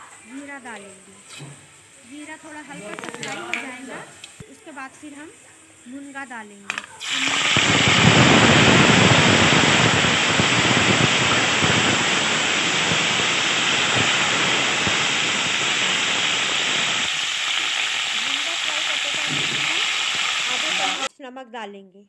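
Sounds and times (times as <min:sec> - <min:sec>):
vegetables sizzling in hot oil: 0:00.0 - 0:21.1.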